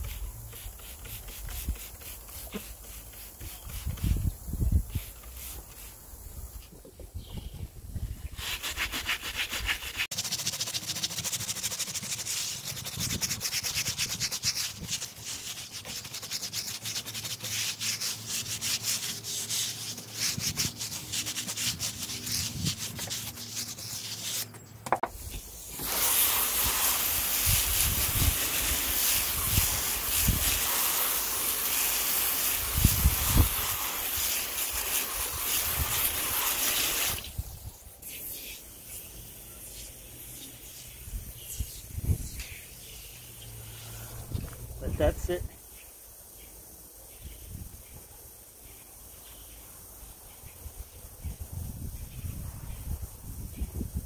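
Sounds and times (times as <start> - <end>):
brush scrubbing rubber tire: 0.0 - 6.1, 8.3 - 24.5, 25.7 - 37.4
hose spraying water: 0.0 - 6.7, 25.1 - 45.4.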